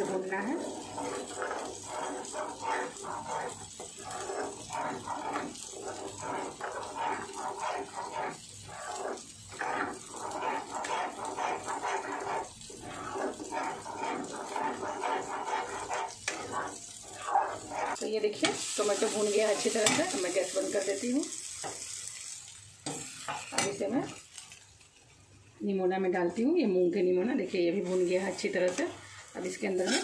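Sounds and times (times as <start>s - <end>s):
spatula scraping paste in pan: 0.0s - 21.0s, 27.1s - 30.0s.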